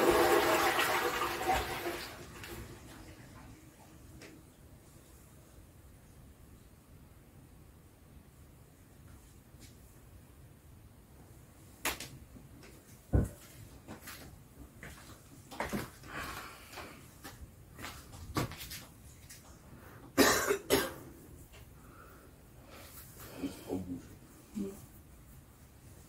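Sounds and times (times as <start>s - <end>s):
person coughing: 20.2s - 21.1s.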